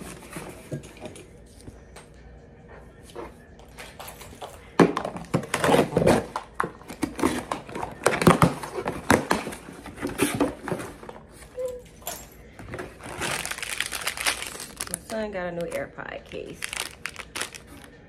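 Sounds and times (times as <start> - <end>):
packaging rustling and crinkling: 12.7 - 18.0.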